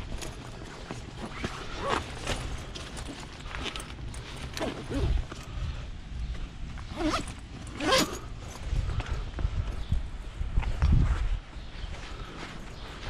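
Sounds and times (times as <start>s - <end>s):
short squeaky creaks: 6.9s - 8.4s.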